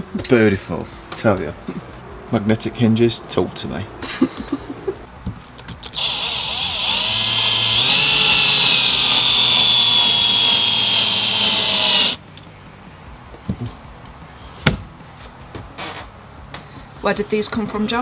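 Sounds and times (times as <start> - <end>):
cordless drill driving a screw: 5.8 - 12.2.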